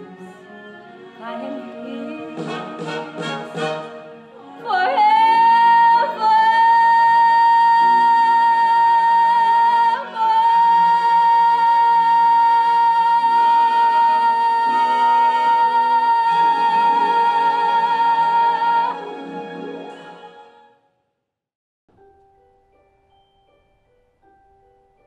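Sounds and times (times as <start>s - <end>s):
instrumental accompaniment: 0.0s - 20.6s
woman singing long high note: 4.4s - 19.0s.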